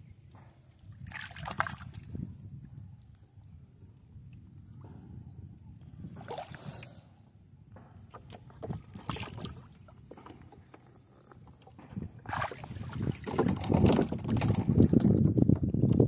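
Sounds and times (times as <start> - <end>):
water sloshing and splashing: 0.8 - 2.4, 6.0 - 7.0, 7.9 - 15.6.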